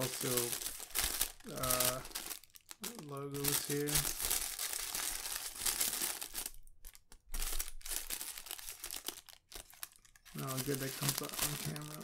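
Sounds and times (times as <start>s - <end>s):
tissue paper crinkling: 0.0s - 12.0s.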